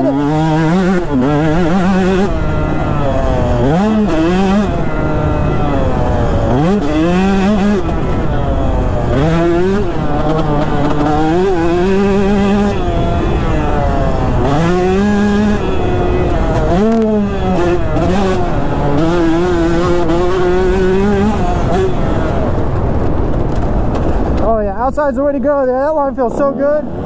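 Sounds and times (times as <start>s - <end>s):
dirt bike engine revving: 0.0s - 27.0s.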